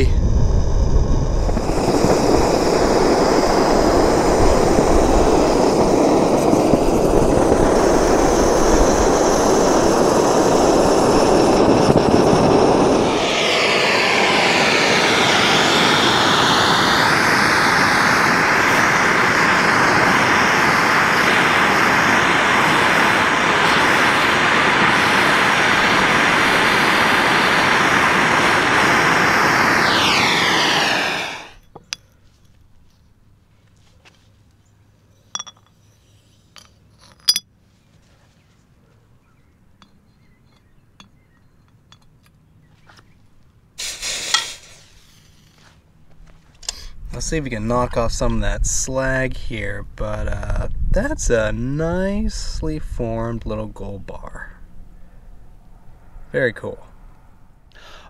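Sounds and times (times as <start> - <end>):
torch flames roaring hiss: 0.0 - 31.6, 43.8 - 45.4.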